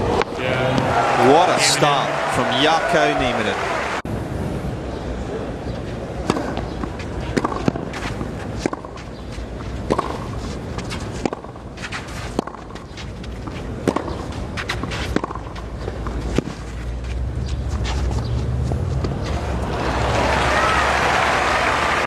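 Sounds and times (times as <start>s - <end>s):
tennis racket hitting ball: 6.2s - 9.2s, 9.8s - 12.8s, 13.4s - 16.9s.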